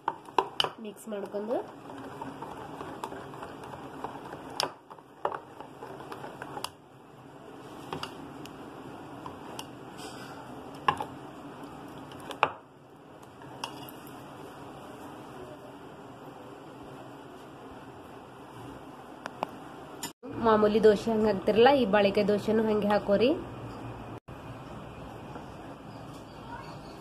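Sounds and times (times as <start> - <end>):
spoon stirring thick batter: 0.0 - 8.2.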